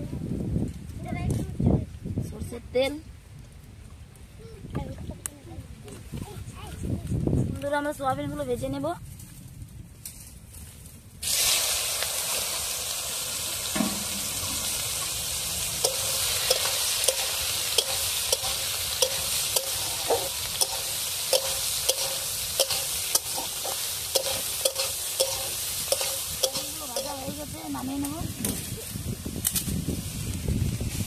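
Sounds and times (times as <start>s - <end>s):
food sizzling in oil: 11.2s - 29.1s
utensil scraping a pan: 15.8s - 27.4s.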